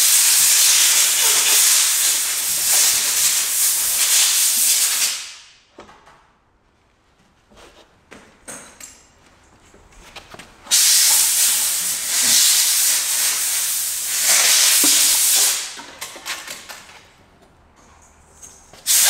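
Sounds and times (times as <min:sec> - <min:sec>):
pressurised air spraying hiss: 0:00.0 - 0:05.4, 0:10.7 - 0:15.8
hand tools clicking and knocking: 0:14.3 - 0:19.0.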